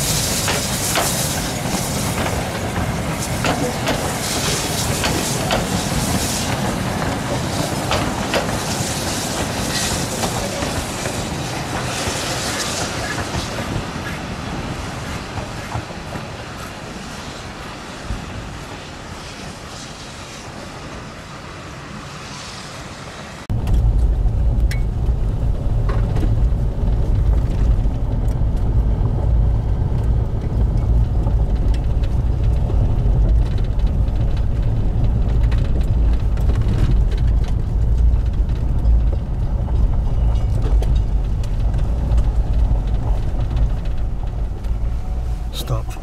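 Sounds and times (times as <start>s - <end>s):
car engine and road rumble: 23.4s - 46.0s.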